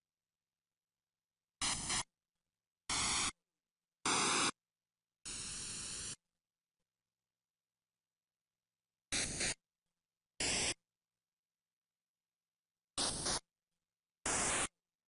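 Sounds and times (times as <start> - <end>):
static hiss bursts: 2.9 - 3.4, 4.1 - 4.6, 14.3 - 14.8.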